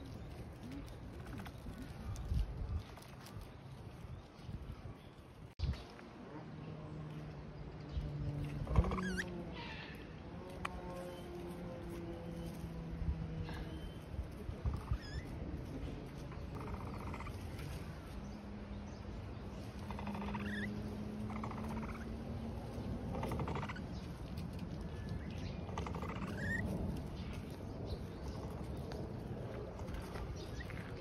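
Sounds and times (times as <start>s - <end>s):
capybara rasping calls: 8.6s - 10.9s, 19.8s - 22.2s, 23.1s - 23.9s, 25.7s - 26.6s.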